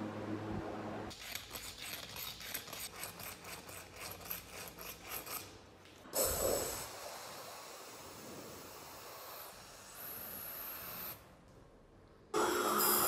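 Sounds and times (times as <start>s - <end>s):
sandpaper rasping on metal: 1.1s - 5.5s.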